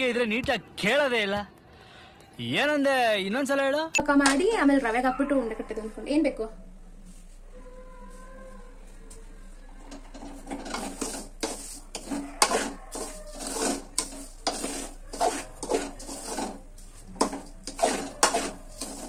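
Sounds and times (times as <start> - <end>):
metal spoon scraping pan: 9.8 - 19.0.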